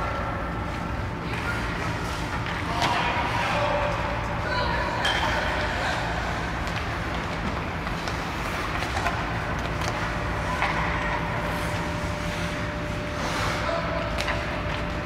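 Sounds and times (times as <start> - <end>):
hockey sticks striking pucks: 0.7 - 4.1, 6.6 - 12.6, 13.2 - 15.0.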